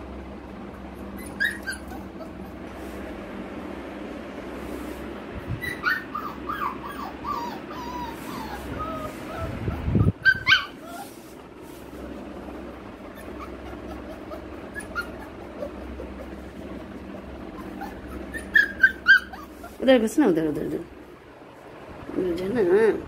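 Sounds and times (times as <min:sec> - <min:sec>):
puppy yelping: 0:01.0 - 0:02.7, 0:05.6 - 0:11.4, 0:13.0 - 0:20.0
puppy whimpering: 0:01.0 - 0:03.0, 0:05.6 - 0:11.4, 0:12.7 - 0:20.9.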